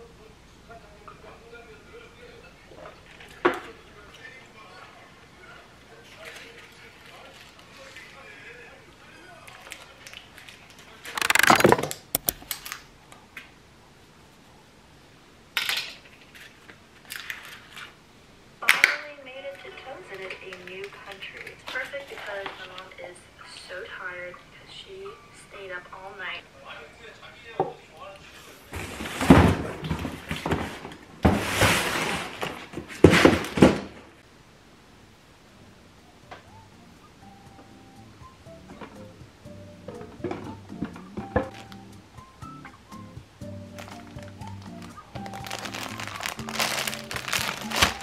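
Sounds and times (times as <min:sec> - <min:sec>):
paper wrappers crinkling: 0:09.4 - 0:12.9, 0:15.7 - 0:18.0, 0:43.7 - 0:48.0
cardboard boxes scraping and thudding: 0:28.7 - 0:34.0.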